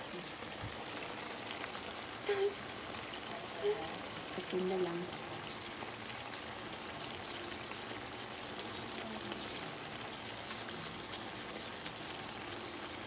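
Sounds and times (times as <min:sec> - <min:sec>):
pot bubbling and sizzling: 0:00.0 - 0:13.0.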